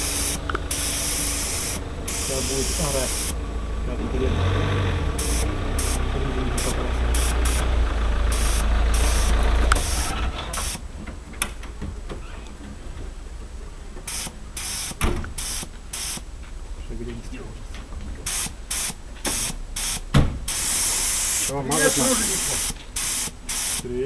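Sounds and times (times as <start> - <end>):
spray gun hissing bursts: 0.0 - 3.4, 5.2 - 6.0, 6.6 - 7.7, 8.3 - 10.8, 14.1 - 16.2, 18.2 - 23.9
low engine rumble: 0.0 - 24.0.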